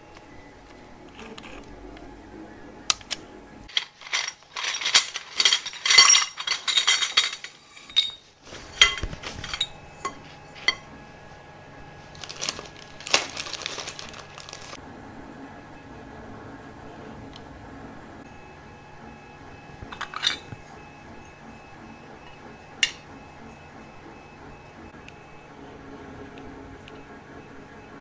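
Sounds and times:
metal rails clinking together: 3.7s - 10.8s
plastic sheeting crinkling: 12.0s - 14.8s.

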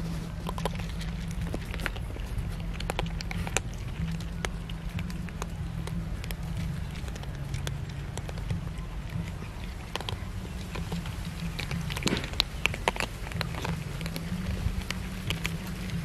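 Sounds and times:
cats crunching dry kibble: 0.0s - 16.0s
steady low hum: 0.0s - 16.0s.

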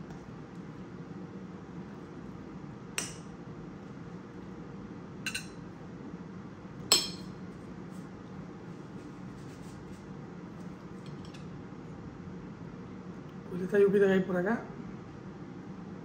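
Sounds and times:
steady low hum: 0.0s - 16.0s
cutlery clinking on plates: 5.3s - 5.6s.

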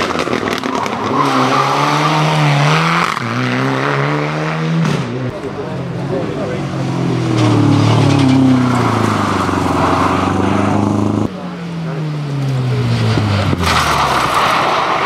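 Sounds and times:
rally car engine slowing: 4.9s - 15.0s.

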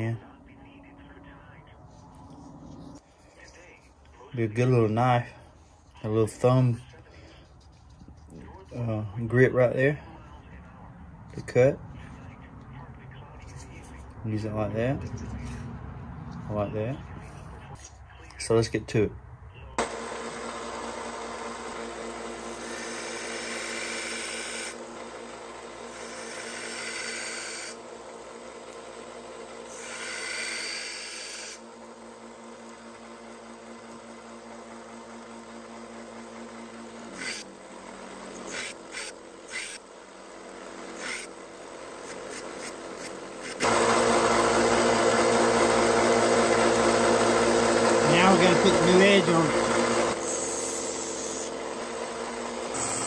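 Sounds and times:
belt sander running: 19.8s - 53.0s.

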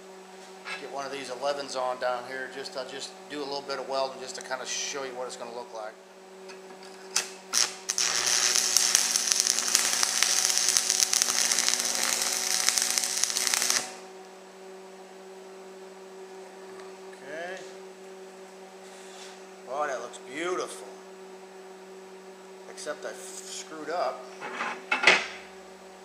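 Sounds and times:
steady electrical hum: 0.0s - 26.0s
welding arc crackling and hissing: 7.1s - 14.1s.

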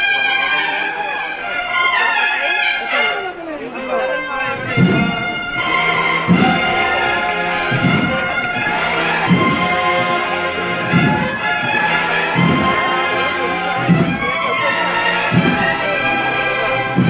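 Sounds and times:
brass band playing march: 0.0s - 17.0s
low drum beat: 4.5s - 17.0s.

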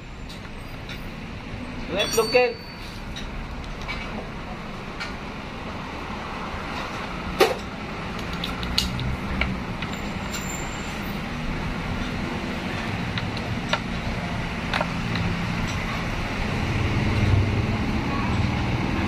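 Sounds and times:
metal tools clinking: 1.9s - 3.3s.

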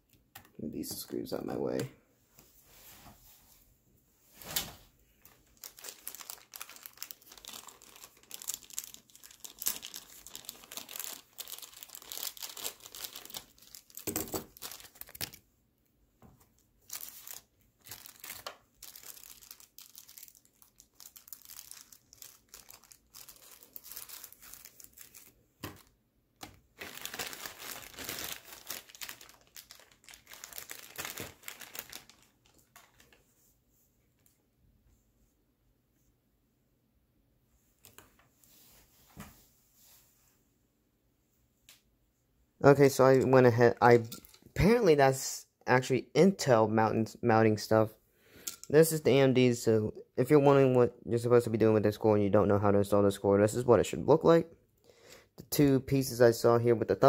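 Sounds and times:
plastic bags crinkling: 5.2s - 15.4s, 16.8s - 33.2s.

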